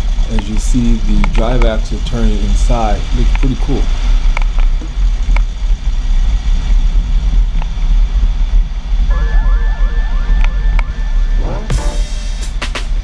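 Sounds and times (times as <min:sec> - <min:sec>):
tyre and road noise: 0:00.0 - 0:09.2.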